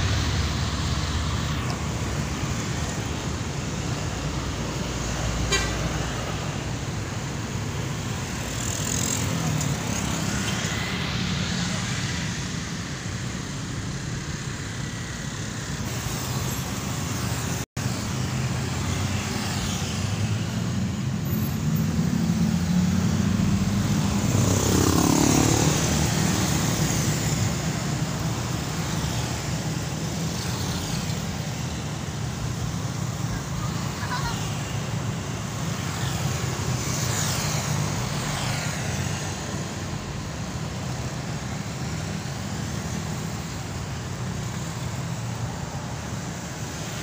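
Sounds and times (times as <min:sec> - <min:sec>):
road traffic passing: 0:00.0 - 0:47.0.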